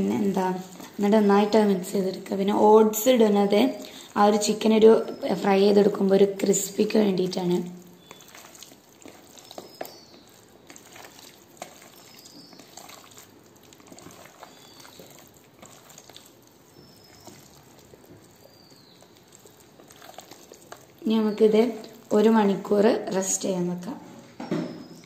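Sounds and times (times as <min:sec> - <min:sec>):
wet squishing of marinated chicken: 0:06.6 - 0:23.2.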